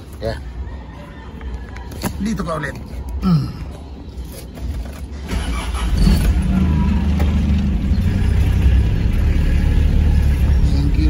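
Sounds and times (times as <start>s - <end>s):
vehicle engine accelerating: 5.3s - 11.0s.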